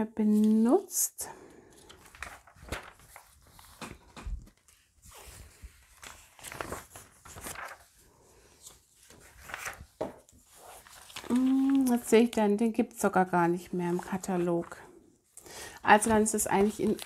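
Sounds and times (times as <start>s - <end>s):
paper pages rustling: 1.6s - 12.4s, 13.6s - 14.9s, 15.7s - 17.0s.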